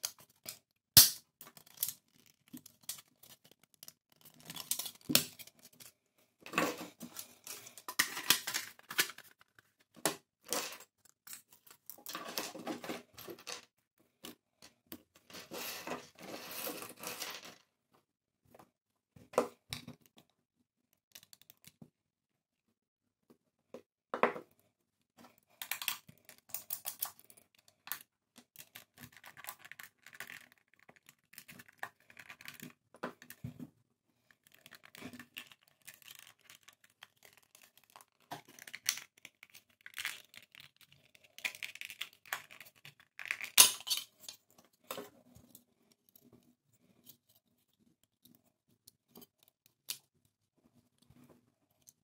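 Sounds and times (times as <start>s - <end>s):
sharp plastic crack: 1.0s - 3.0s.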